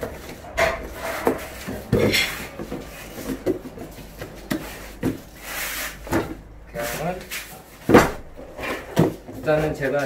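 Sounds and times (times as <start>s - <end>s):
cardboard rubbing scrapes: 4.5s - 6.2s.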